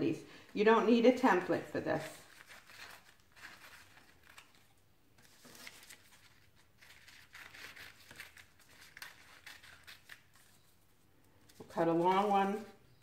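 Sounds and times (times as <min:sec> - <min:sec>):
paper rustling: 0:02.0 - 0:12.8
scissors snipping paper: 0:02.2 - 0:10.5.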